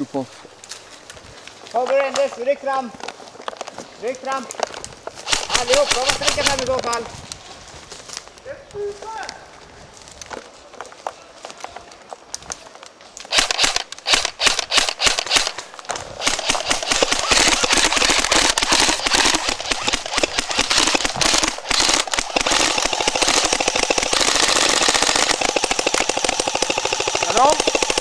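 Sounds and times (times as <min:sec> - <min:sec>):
airsoft guns firing: 0:05.2 - 0:07.0, 0:13.3 - 0:28.0.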